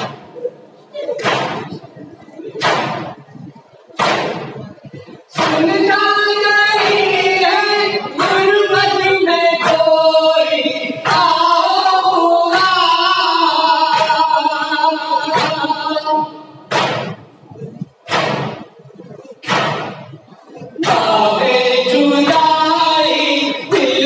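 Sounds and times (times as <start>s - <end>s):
hand slaps on chests: 1.2s - 1.8s, 4.0s - 4.5s, 16.7s - 17.2s, 18.1s - 18.6s, 19.4s - 20.1s
men chanting a lament in unison: 20.7s - 24.0s.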